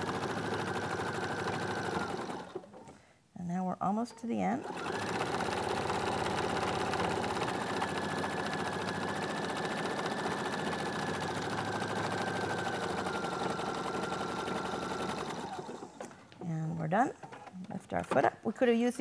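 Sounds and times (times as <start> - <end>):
sewing machine stitching: 0.0 - 2.9, 4.4 - 16.2.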